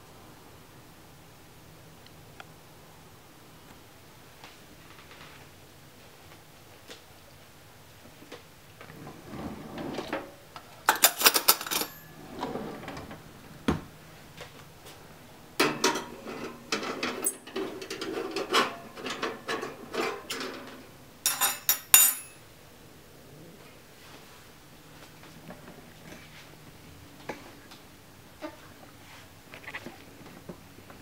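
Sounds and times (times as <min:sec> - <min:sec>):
metal clinking and rattling: 0:10.9 - 0:12.0, 0:21.3 - 0:22.4.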